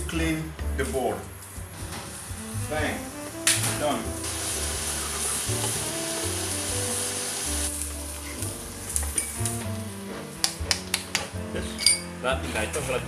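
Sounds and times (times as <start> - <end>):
background music with bass line: 0.0 - 13.0
onion sizzling in hot oil: 2.0 - 9.6.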